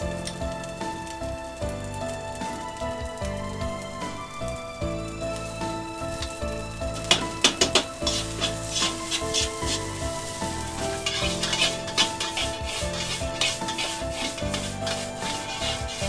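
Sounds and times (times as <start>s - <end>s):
rice sizzling: 0.0s - 16.0s
metal spatula scraping a wok: 6.9s - 16.0s.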